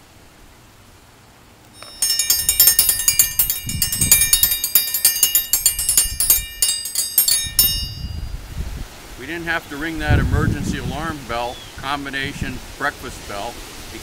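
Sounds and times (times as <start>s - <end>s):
metal alarm bell ringing rapidly: 1.8s - 8.3s.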